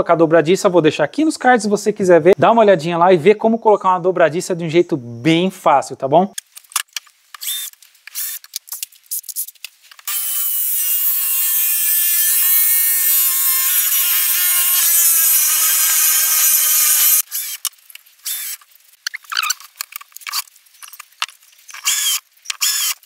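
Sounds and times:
drill boring into wood: 10.1 - 18.6, 21.7 - 23.0.

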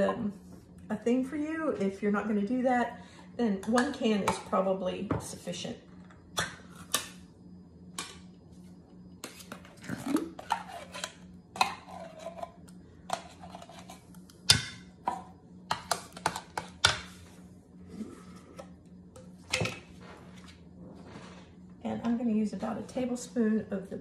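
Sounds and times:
spoon scraping a tin can: 9.2 - 14.1.

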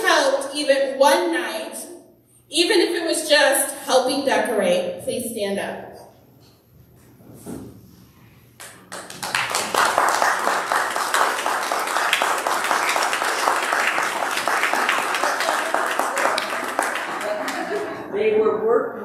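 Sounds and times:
crowd applauding: 8.6 - 18.1.

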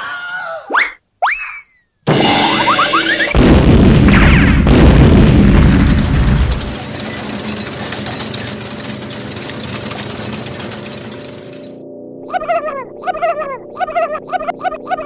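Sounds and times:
cartoon explosion boom: 2.1 - 6.7.

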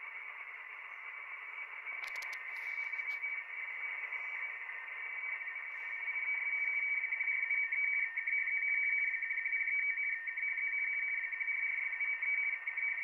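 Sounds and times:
radio band hiss: 0.0 - 5.0
two-tone data signal warble: 1.6 - 7.4.

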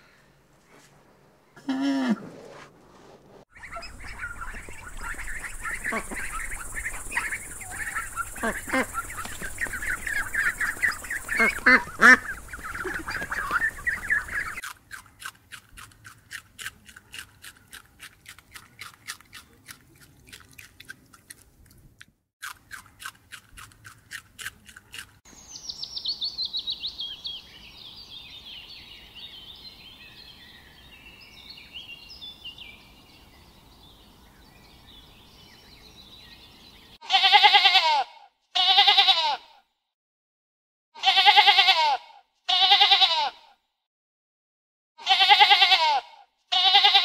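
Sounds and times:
ducks calling: 3.5 - 14.6
high quick bird chirps: 3.5 - 14.6
rabbits crunching on greens: 3.6 - 25.2.

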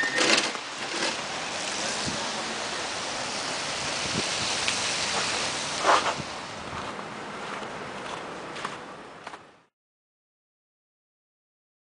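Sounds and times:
rushing street noise: 0.0 - 9.7.

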